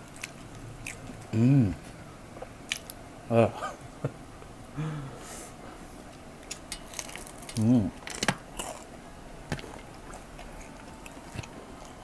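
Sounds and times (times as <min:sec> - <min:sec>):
person humming mmm: 0:01.3 - 0:01.9
wet chewing and lip-smacking: 0:09.5 - 0:12.0.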